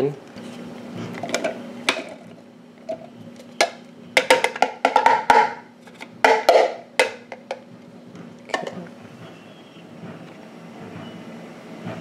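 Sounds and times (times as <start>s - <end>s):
plastic container knocking on bowl: 4.2s - 5.6s, 6.2s - 7.6s.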